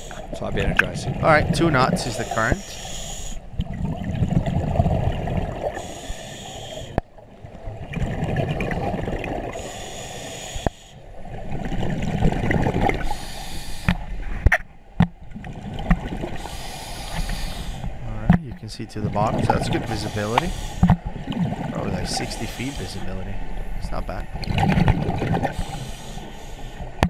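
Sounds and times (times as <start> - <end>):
exhaled bubbles rumbling underwater: 0.0 - 27.0
hissing regulator inhalation: 2.0 - 3.5, 5.7 - 7.0, 9.6 - 11.0, 13.0 - 14.0, 16.4 - 17.9, 19.8 - 21.0, 22.2 - 23.0, 25.5 - 27.0.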